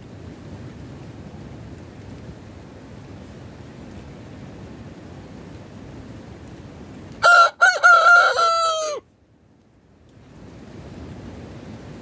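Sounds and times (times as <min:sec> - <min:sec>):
rooster crowing: 0:07.2 - 0:09.1.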